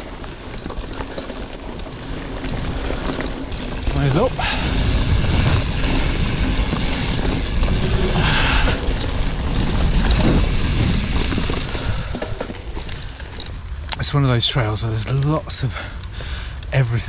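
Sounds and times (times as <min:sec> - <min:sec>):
bike rattle: 0:00.0 - 0:16.4
bike tyres rumbling on dirt: 0:00.0 - 0:17.0.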